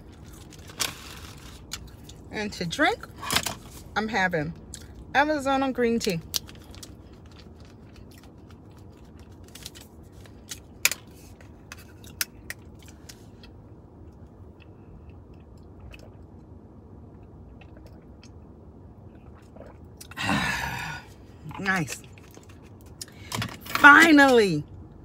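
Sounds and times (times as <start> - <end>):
quiet drinking: 19.0 - 23.2.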